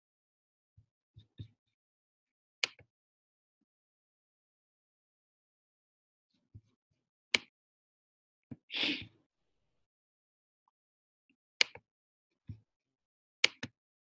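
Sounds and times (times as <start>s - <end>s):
breathy puff of noise: 8.8s - 9.0s.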